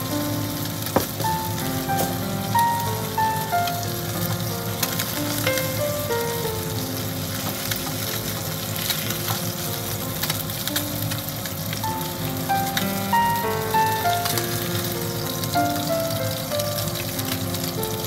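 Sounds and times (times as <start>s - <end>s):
fish sizzling in oil: 0.0s - 18.0s.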